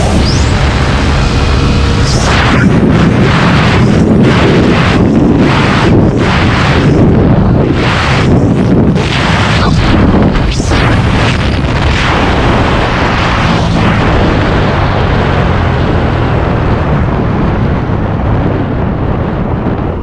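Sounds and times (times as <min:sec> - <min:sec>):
scooter engine humming: 0:00.0 - 0:07.6
wind buffeting microphone: 0:00.0 - 0:20.0.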